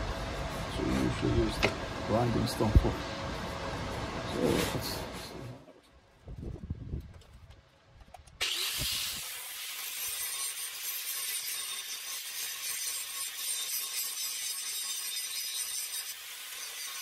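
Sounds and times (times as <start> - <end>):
angle grinder grinding steel: 8.4 - 17.0.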